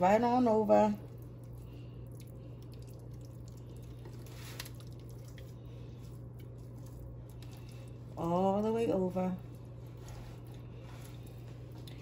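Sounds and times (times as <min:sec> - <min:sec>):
hand squishing butter mixture: 0:00.0 - 0:12.0
steady low hum: 0:00.0 - 0:12.0.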